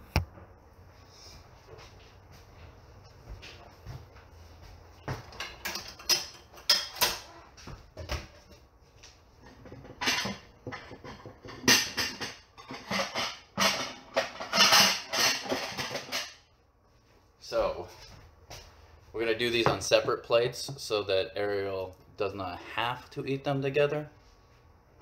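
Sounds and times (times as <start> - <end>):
dishes clattering and scraping: 5.1 - 7.4, 9.4 - 16.5
dishes and cutlery clinking: 9.4 - 16.4.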